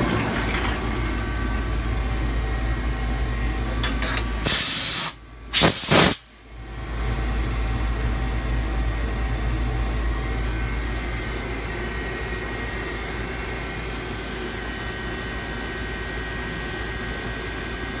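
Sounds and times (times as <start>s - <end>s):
lathe mechanical hum: 0.0s - 4.5s, 6.4s - 18.0s
blow gun hissing: 4.4s - 6.3s.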